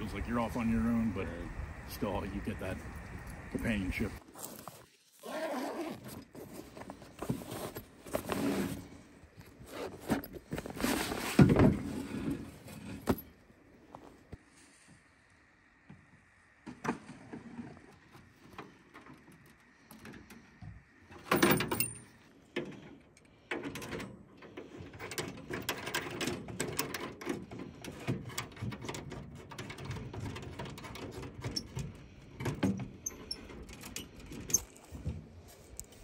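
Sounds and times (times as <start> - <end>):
metal clatter of camp stove: 21.1 - 34.9
metallic clicks and scraping: 21.1 - 35.0.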